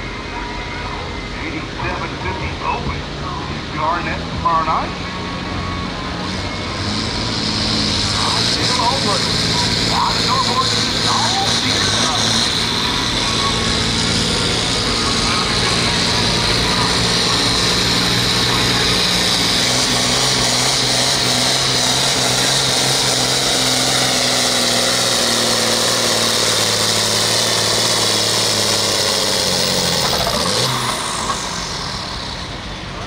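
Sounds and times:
tractor engine droning with whine: 0.0s - 33.0s.

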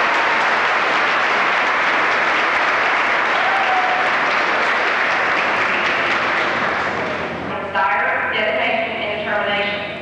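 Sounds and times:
crowd applauding: 0.0s - 7.4s.

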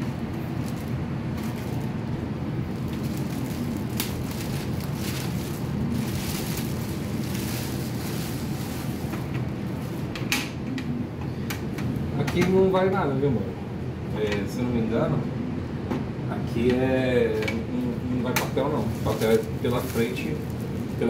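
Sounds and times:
plastic wrapping crinkling: 0.4s - 9.3s, 18.8s - 21.0s.

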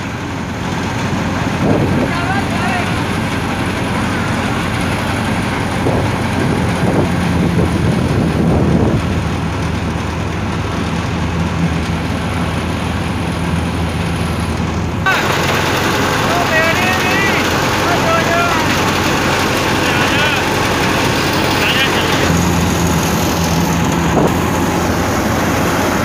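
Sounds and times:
tractor engine idling: 0.0s - 26.0s
faint voices: 15.1s - 15.6s, 16.2s - 22.4s.

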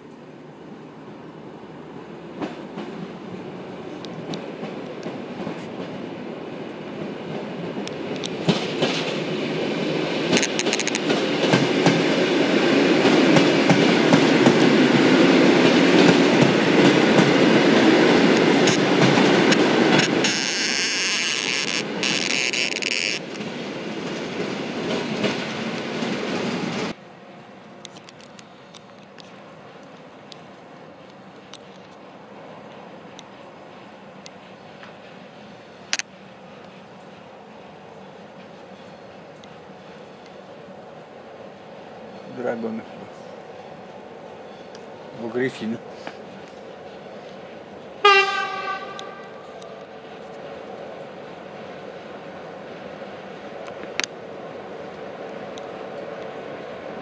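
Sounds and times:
train wheels clickety-clack: 2.3s - 3.3s, 4.0s - 6.1s, 6.9s - 27.0s, 32.7s - 35.3s
wheels squealing: 18.2s - 23.5s.

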